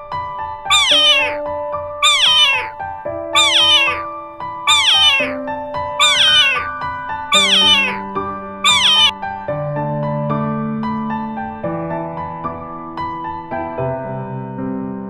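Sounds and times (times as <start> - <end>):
cat meowing: 0.7 - 1.4, 2.0 - 2.8, 3.4 - 4.1, 4.7 - 5.4, 6.0 - 9.1.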